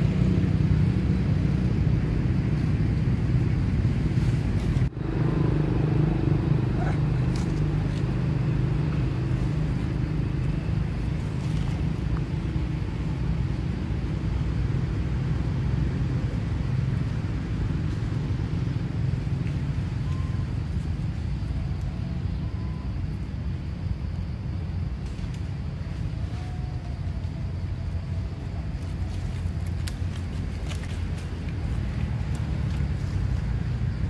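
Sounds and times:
steady low rumble: 0.0 - 34.0.

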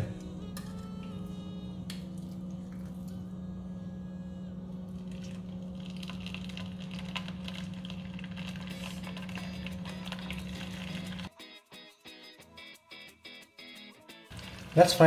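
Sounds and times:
steady low hum: 0.0 - 11.3
oil sizzling and crackling: 4.9 - 11.3, 14.3 - 15.0.

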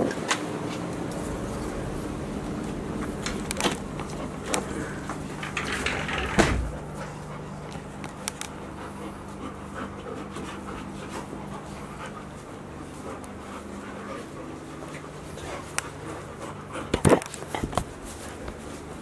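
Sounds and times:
dogs panting: 0.5 - 19.0.

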